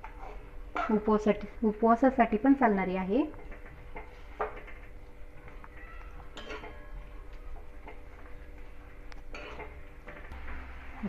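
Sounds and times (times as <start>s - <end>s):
spoon scraping iron pan: 6.4s - 6.8s, 9.3s - 9.8s.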